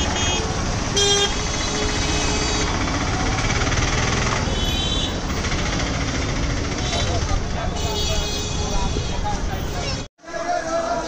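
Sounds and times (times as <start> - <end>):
vehicle engines running: 0.0 - 8.0.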